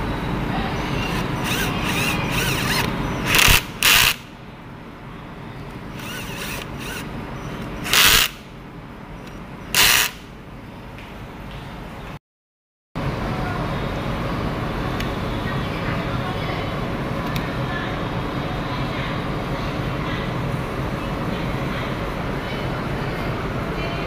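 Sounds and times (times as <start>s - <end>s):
power drill driving screws: 1.0s - 4.2s, 6.0s - 7.0s, 7.8s - 8.4s, 9.8s - 10.2s.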